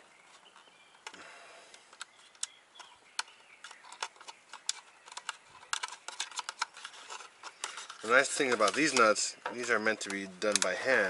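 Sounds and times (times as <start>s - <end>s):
gauge housings tapping together: 8.4s - 10.8s.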